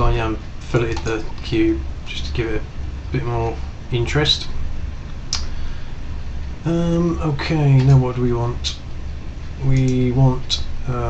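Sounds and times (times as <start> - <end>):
man speaking: 0.0 - 4.6, 6.6 - 8.8, 9.6 - 11.0
steady low hum: 0.0 - 11.0.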